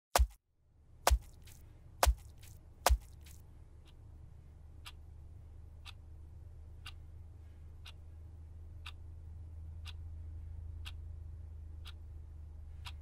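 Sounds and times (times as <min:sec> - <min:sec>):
low steady hum: 0:00.2 - 0:13.0
clock ticking: 0:01.1 - 0:04.0, 0:04.7 - 0:05.2, 0:05.8 - 0:07.2, 0:07.8 - 0:08.2, 0:08.8 - 0:11.1, 0:11.7 - 0:13.0.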